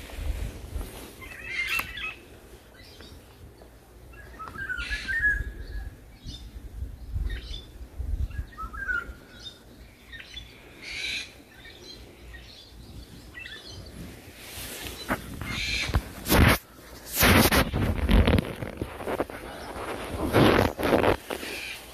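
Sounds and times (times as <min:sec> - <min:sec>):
songbirds chirping: 0:00.0 - 0:21.9
brief rush of noise: 0:15.6 - 0:21.8.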